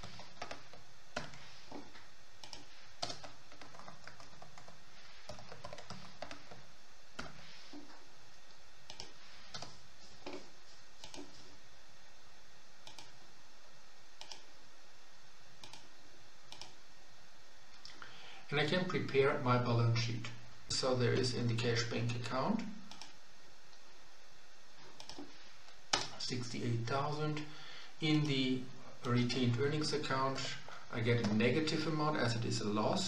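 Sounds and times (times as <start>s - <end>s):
computer keyboard typing: 0.0s - 7.9s, 8.9s - 10.4s, 11.0s - 11.3s, 12.8s - 13.2s, 14.2s - 14.5s, 15.6s - 15.9s, 16.5s - 16.8s, 24.9s - 25.3s
steady hiss: 0.0s - 33.0s.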